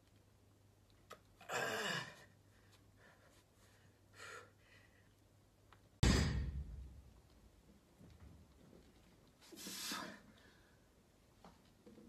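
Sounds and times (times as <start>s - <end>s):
heavy thud: 6.0s - 7.0s.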